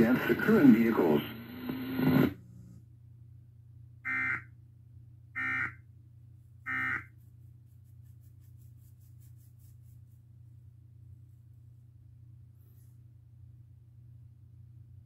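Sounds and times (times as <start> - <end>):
person speaking: 0.0 - 1.4.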